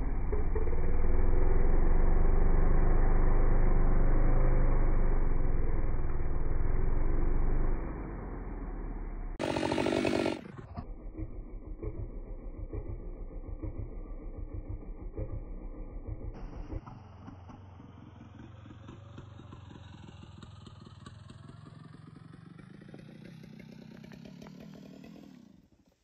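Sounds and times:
chainsaw cutting wood: 9.4s - 10.9s, 23.7s - 25.6s
chainsaw idling: 9.4s - 16.4s.

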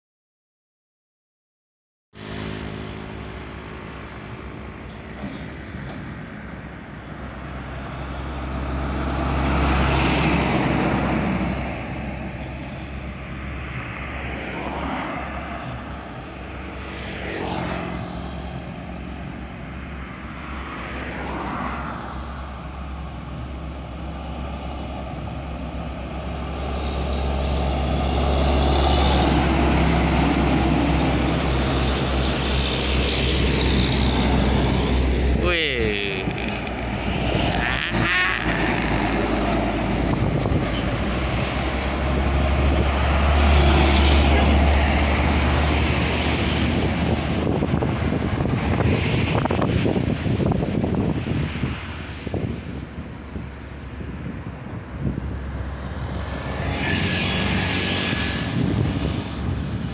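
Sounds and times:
low traffic rumble: 2.2s - 59.9s
trucks and cars passing: 2.2s - 59.9s.

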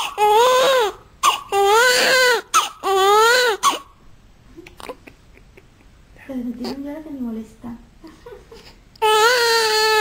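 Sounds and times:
newborn baby crying: 0.0s - 4.0s, 9.0s - 10.0s.

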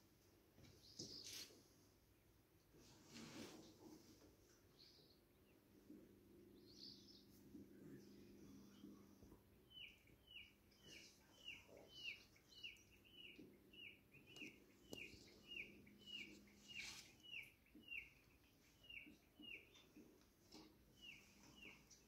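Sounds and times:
bird chirping faintly: 4.6s - 22.0s.

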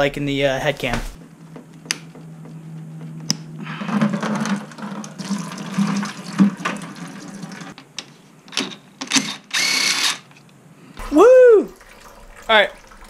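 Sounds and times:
coolant pouring and splashing: 3.8s - 7.8s, 11.0s - 13.0s.

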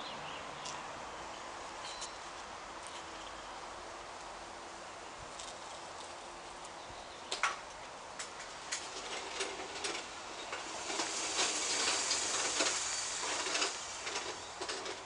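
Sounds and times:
rustling hiss: 8.2s - 15.0s.

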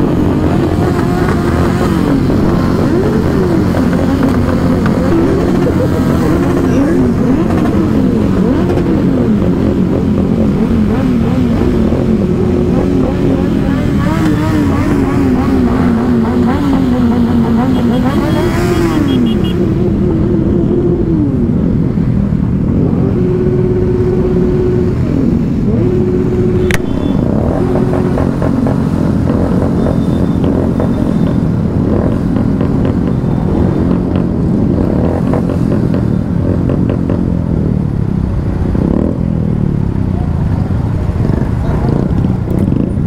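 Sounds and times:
motorcycle engines idling and revving: 0.0s - 43.0s
horn sounding: 17.2s - 19.7s, 25.9s - 27.9s.

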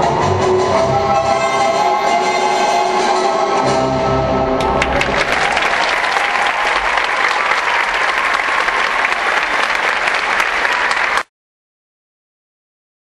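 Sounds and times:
audience applauding: 4.6s - 11.3s.

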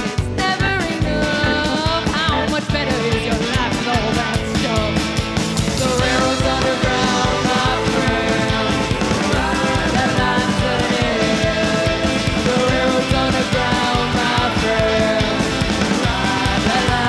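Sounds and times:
woman singing: 0.0s - 5.0s, 5.8s - 17.0s
drums: 0.0s - 17.0s
electric guitar: 0.0s - 17.0s
upright bass: 0.0s - 17.0s.

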